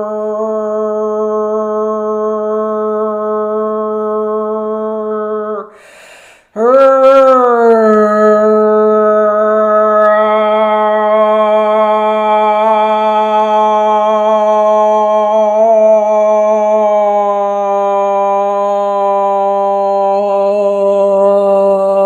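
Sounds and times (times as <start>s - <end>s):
woman singing long vowel: 6.6s - 17.7s.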